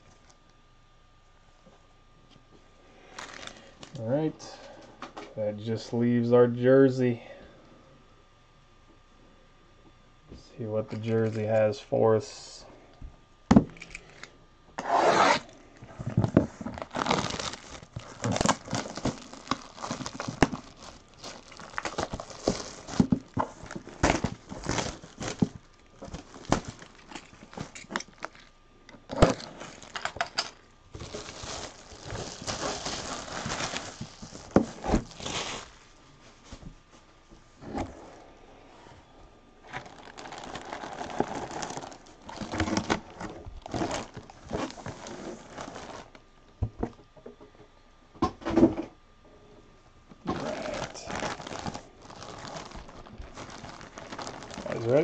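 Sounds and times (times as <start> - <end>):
packaging tearing and crinkling: 3.1 - 4.0, 16.2 - 35.9, 39.7 - 46.2, 50.2 - 55.0.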